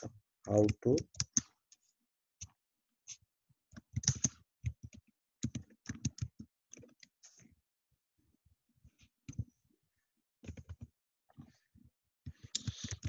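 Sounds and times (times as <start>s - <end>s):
computer keyboard typing: 4.0s - 6.4s.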